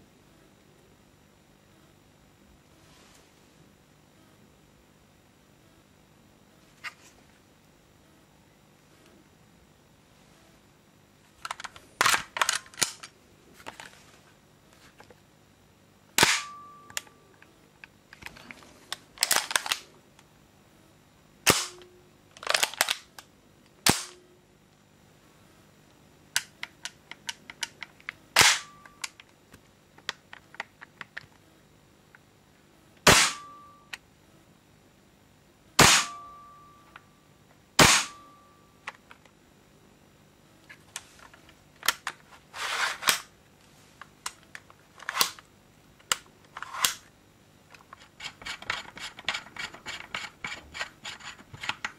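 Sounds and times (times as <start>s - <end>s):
sharp metallic gun clacks: 35.8s - 36.3s.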